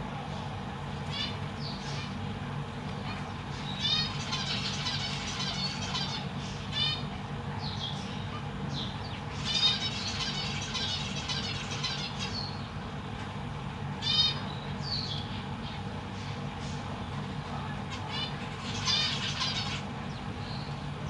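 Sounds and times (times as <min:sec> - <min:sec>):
finches honking calls: 0:01.0 - 0:02.2, 0:03.0 - 0:12.8, 0:13.9 - 0:16.8, 0:17.8 - 0:20.8
high chirps and chatter: 0:03.1 - 0:12.7, 0:16.2 - 0:20.8.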